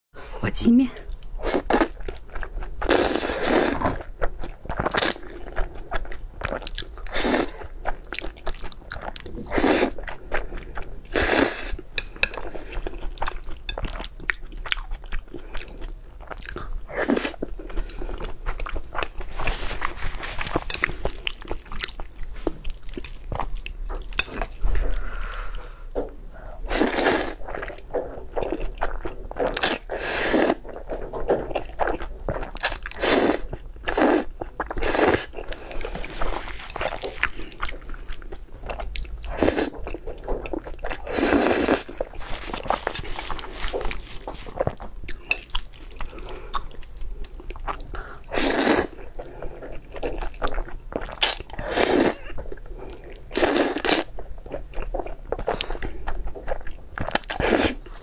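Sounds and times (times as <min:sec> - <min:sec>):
wet chewing and crunching: 0:01.1 - 0:25.3, 0:26.0 - 0:58.0
slurping noodles: 0:02.8 - 0:04.1, 0:29.5 - 0:30.6, 0:41.0 - 0:44.8, 0:48.3 - 0:49.0.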